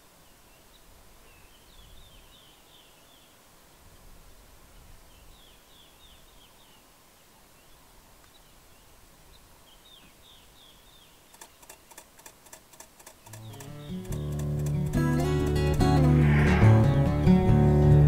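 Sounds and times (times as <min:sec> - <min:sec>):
bird chirping: 0:07.5 - 0:17.1
sharp clicks: 0:11.3 - 0:16.1
guitar music: 0:13.3 - 0:18.0.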